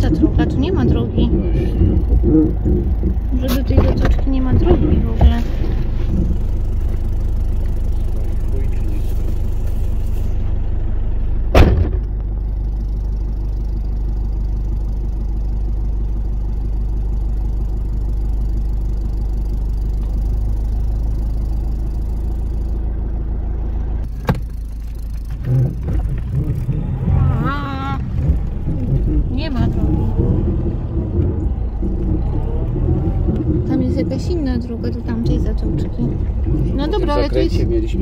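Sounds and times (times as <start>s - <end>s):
engine idling: 0.0s - 38.0s
loud thump: 11.5s - 12.2s, 24.1s - 24.5s.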